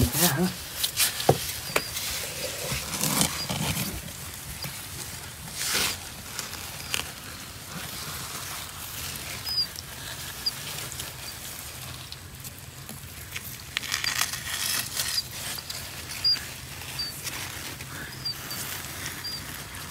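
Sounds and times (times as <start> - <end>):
scraping on sandy soil: 0.0 - 19.9
faint high chirps: 9.4 - 10.6.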